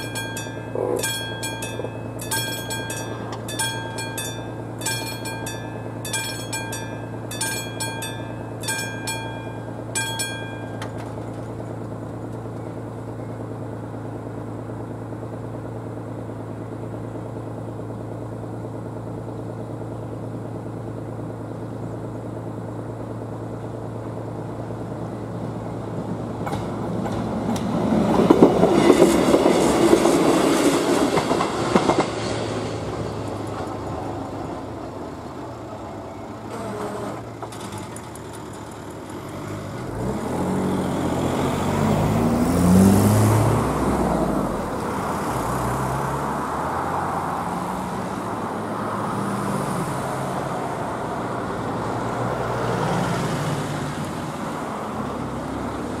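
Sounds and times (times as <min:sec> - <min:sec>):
level crossing warning bell ringing: 0:00.0 - 0:11.8
train wheels clattering on rails: 0:00.0 - 0:12.8, 0:26.0 - 0:40.0.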